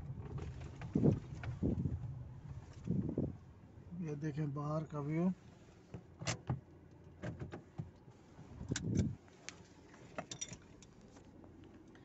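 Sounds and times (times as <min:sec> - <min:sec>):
light handling clicks and knocks: 0:05.5 - 0:12.0.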